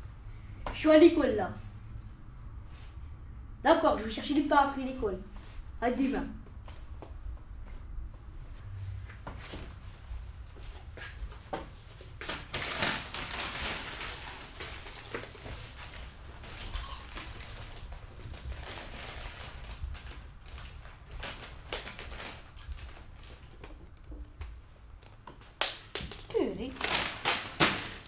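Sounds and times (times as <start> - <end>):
plastic snack packet crinkling: 12.3 - 23.9, 25.0 - 28.0.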